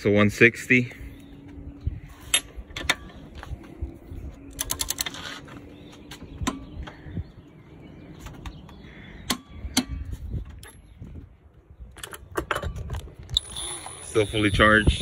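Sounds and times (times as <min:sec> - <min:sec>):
metal tools clicking and knocking: 0:12.0 - 0:13.1.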